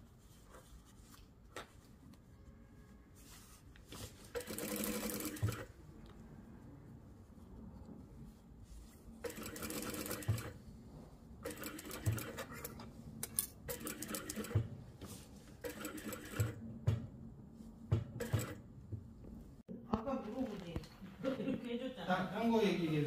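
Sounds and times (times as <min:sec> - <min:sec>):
sewing machine stitching: 0:04.2 - 0:05.7, 0:09.2 - 0:10.6, 0:11.4 - 0:12.8, 0:13.7 - 0:14.7, 0:15.6 - 0:16.6, 0:18.2 - 0:18.6.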